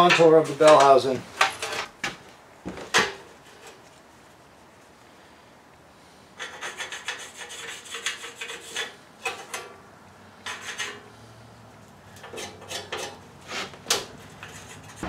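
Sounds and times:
scratchy rubbing on sheet steel: 6.4s - 9.0s, 10.5s - 11.0s, 12.4s - 15.0s.

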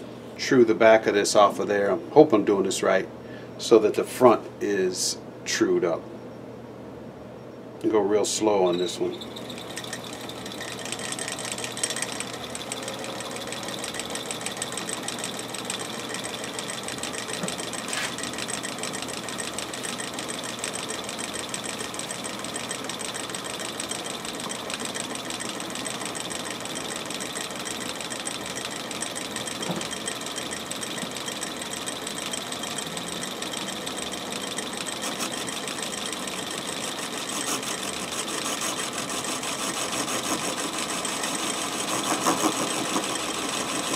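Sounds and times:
bench lathe running: 8.2s - 43.9s.

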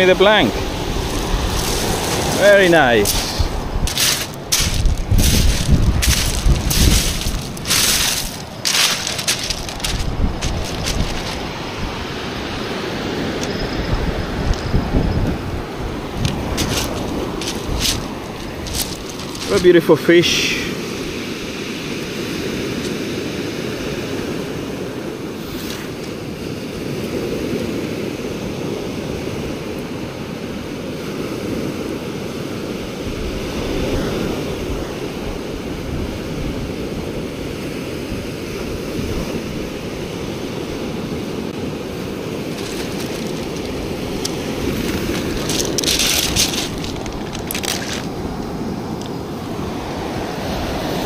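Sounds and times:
wind buffeting microphone: 0.0s - 19.8s, 41.5s - 51.0s
sea surf washing onto beach: 0.0s - 51.0s.

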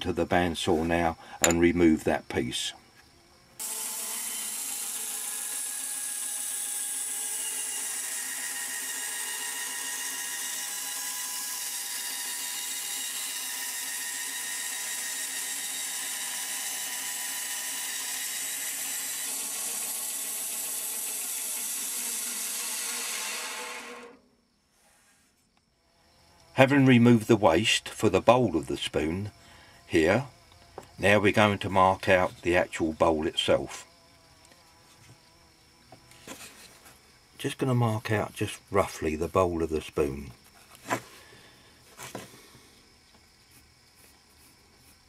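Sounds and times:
bandsaw cutting wood: 3.6s - 24.2s.

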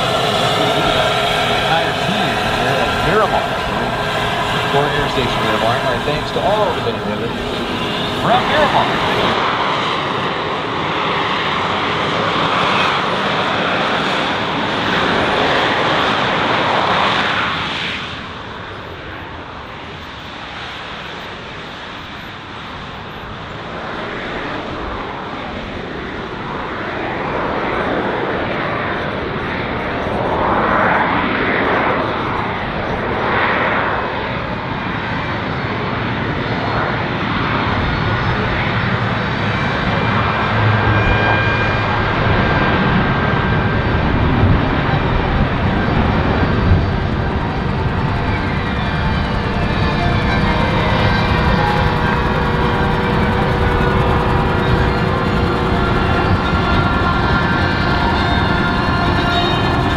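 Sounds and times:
aircraft passing whoosh: 0.0s - 11.6s
military aircraft engine noise: 0.0s - 59.9s.

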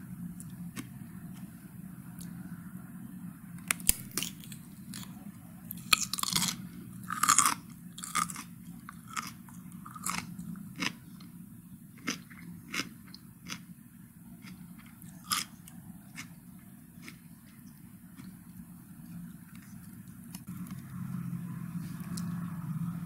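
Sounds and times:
cucumber crunching: 3.7s - 11.0s.

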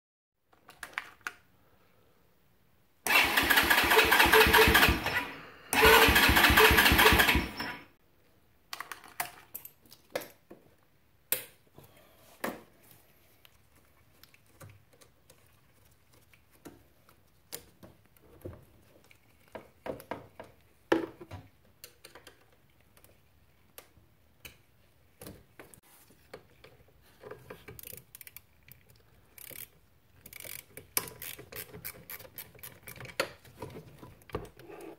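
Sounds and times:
engine cranking without starting: 3.1s - 7.9s
hand tools clicking and knocking: 29.4s - 34.9s.

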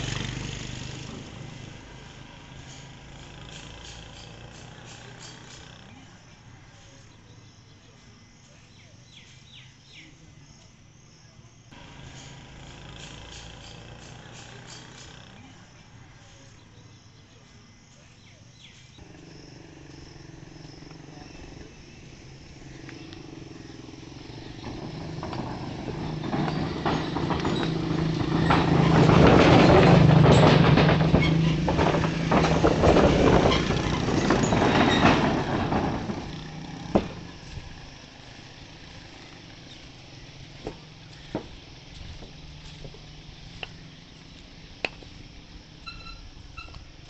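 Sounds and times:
motor rickshaw engine: 0.0s - 10.6s, 11.7s - 47.0s
rattling clatter on bridge: 24.0s - 40.0s.

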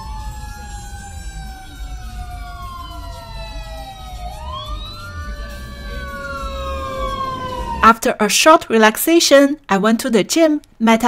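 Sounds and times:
fire truck siren wailing: 0.0s - 8.1s
low rumble: 0.0s - 8.2s.

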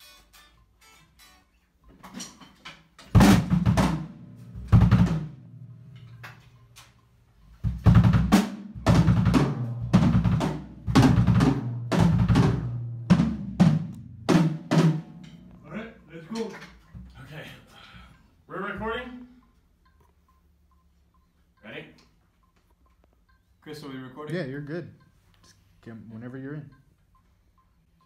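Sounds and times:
heavy metal drum kit: 3.1s - 5.6s, 7.6s - 15.8s.

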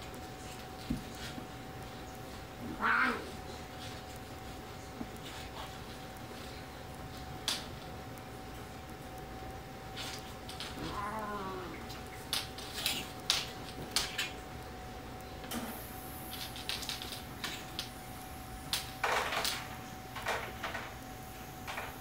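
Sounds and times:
cats scuffling on carpet: 0.1s - 8.0s.

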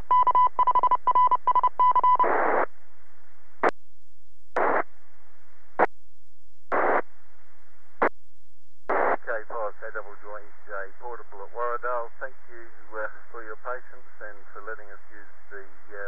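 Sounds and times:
faint steady radio hiss: 0.0s - 16.0s
high radio beeps: 0.1s - 2.7s
radio static bursts: 2.2s - 2.7s, 4.6s - 5.0s, 6.7s - 7.1s, 8.9s - 16.0s.

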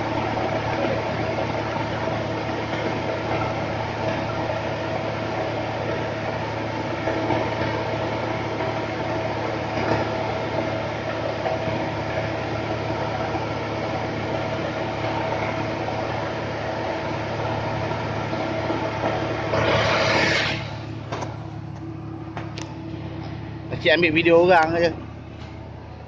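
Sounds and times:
vehicle engine idling: 0.0s - 26.0s
brief rush of noise: 19.5s - 20.8s.

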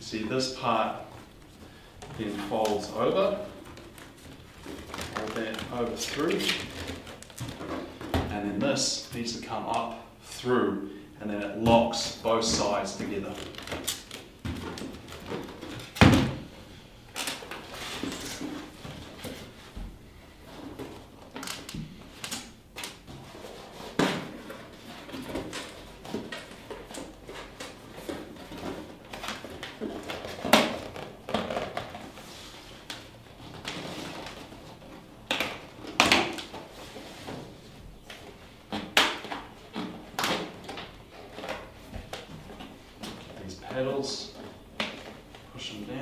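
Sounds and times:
plastic panels creaking: 2.0s - 8.7s, 11.6s - 16.5s.

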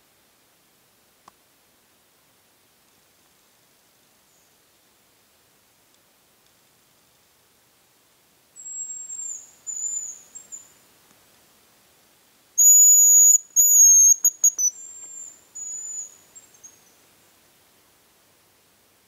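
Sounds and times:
grouse high whistling calls: 8.6s - 10.7s, 12.6s - 17.0s.

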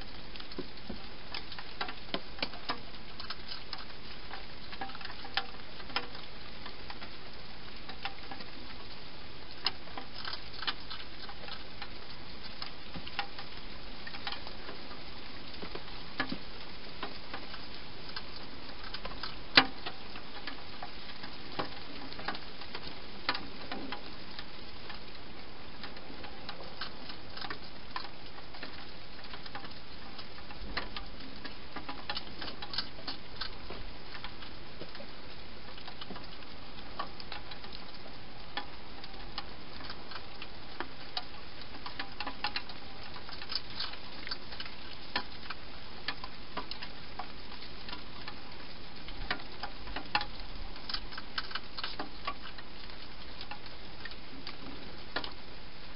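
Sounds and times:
steady hiss: 0.0s - 55.9s
hedgehog eating dry food: 9.6s - 25.1s, 25.8s - 55.4s.

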